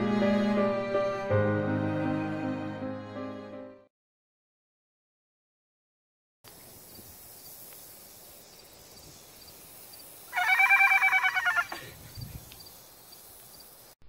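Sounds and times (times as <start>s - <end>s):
outdoor ambience: 6.5s - 14.0s
horse whinny: 10.3s - 11.8s.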